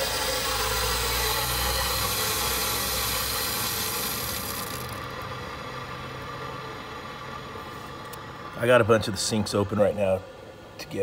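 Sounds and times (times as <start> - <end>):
water hissing through a valve: 0.0 - 4.8.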